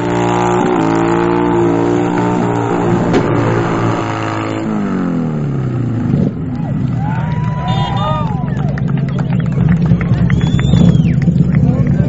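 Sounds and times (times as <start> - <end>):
motorcycle engine at high revs: 0.0 - 6.5.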